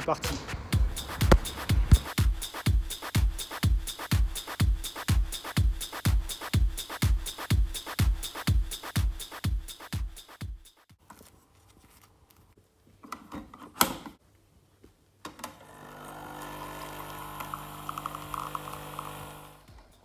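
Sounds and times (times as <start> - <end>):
coffee machine pump humming: 15.7 - 19.6
coffee pouring into glass: 16.4 - 19.5.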